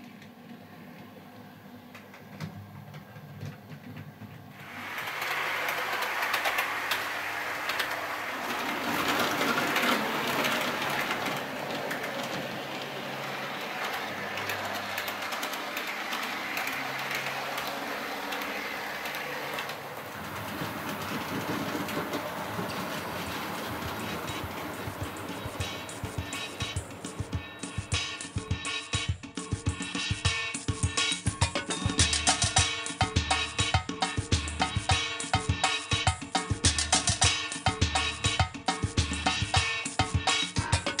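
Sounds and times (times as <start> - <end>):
wheels clicking over rail joints: 3.2 - 28.4
model train whirring: 4.6 - 28.5.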